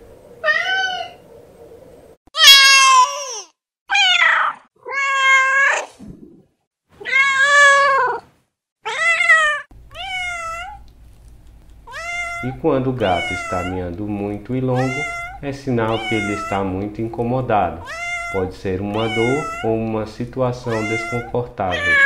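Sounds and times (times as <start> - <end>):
cat meowing: 0.4 - 1.2, 2.4 - 5.9, 7.0 - 8.2, 8.8 - 10.9, 11.9 - 13.9, 14.7 - 16.7, 17.8 - 19.8, 20.6 - 22.0.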